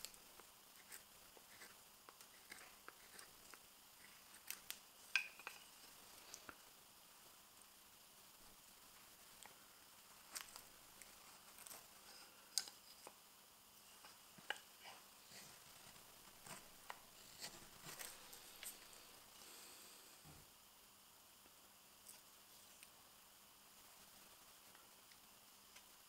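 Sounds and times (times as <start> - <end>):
knife shaving wood: 0.0 - 4.8.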